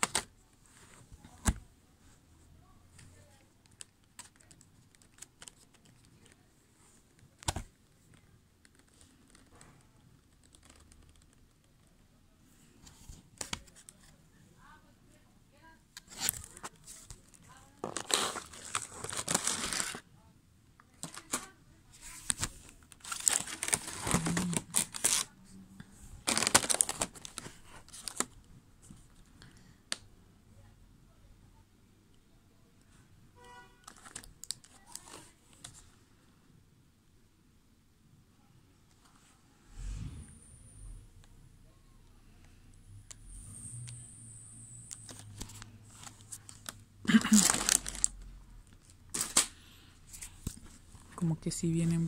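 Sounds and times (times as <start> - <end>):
plastic case crinkling: 16.0 - 20.0, 22.2 - 25.3, 26.2 - 28.4, 45.1 - 48.2.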